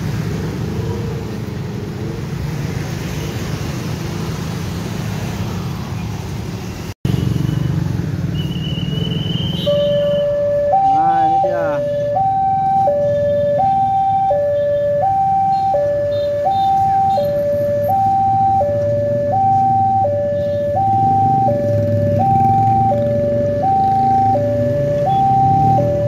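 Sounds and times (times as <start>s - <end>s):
low road traffic rumble: 0.0s - 26.0s
two-tone crossing alarm: 8.5s - 26.0s.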